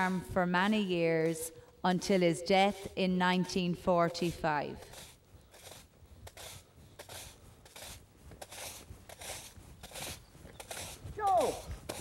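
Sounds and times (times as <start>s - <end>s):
brush sweeping gravel: 3.5s - 12.0s
footsteps on gravel: 3.8s - 12.0s.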